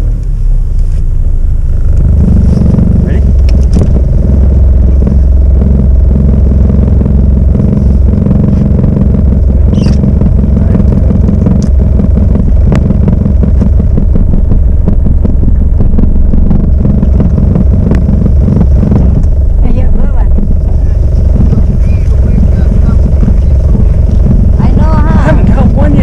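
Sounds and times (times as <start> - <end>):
loud low rumble: 0.0 - 26.0
short high squeak: 9.7 - 10.0.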